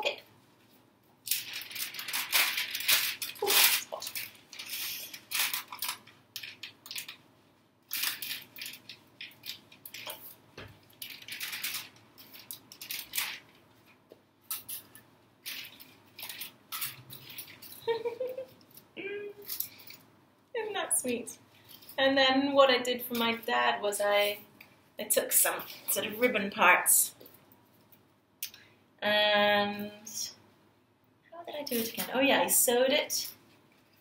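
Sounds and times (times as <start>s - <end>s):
plastic bag crinkling: 1.2s - 7.2s, 7.9s - 20.1s.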